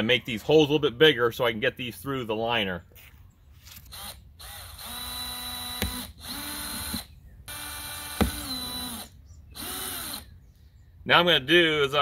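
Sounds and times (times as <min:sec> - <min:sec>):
cordless drill whining: 0:03.7 - 0:10.3.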